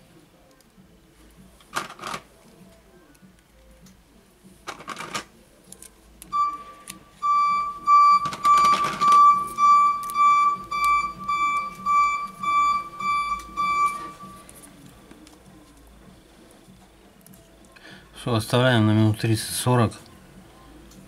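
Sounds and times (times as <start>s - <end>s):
high-pitched electronic beeps: 6.3s - 14.5s.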